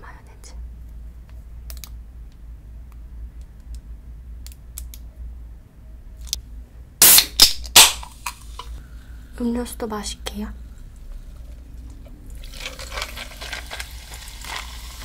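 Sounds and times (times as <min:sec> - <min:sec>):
soda can cracked open: 0:07.0 - 0:08.7, 0:12.4 - 0:15.0.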